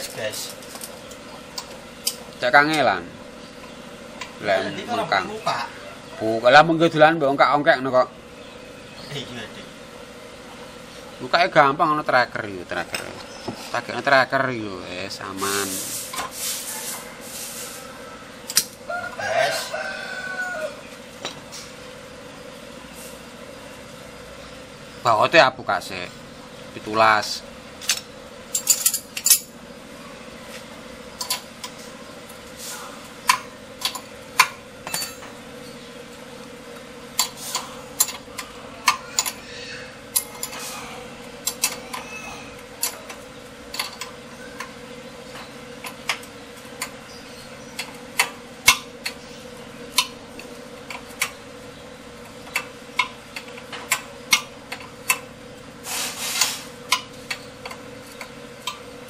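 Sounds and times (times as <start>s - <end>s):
metal scraping rattle: 52.2s - 58.9s.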